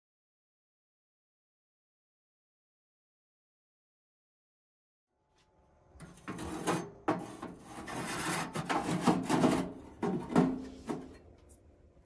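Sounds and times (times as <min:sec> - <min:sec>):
scraping and rubbing with knocks: 0:06.0 - 0:11.3.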